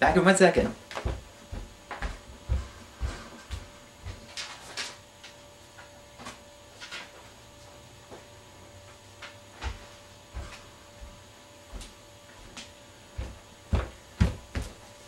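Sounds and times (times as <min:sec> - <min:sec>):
low electrical hum: 0:00.0 - 0:15.0
dull thumps: 0:13.1 - 0:14.8.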